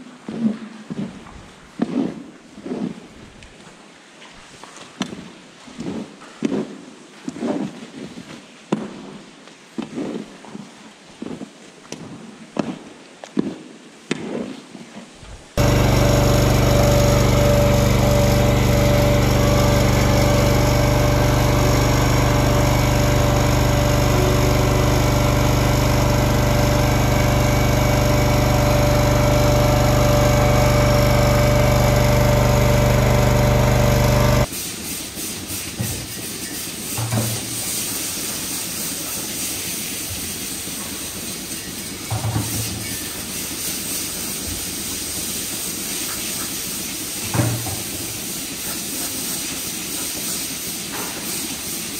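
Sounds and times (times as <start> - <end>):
machine hum: 15.6 - 34.5
scraper scraping concrete: 15.6 - 34.5.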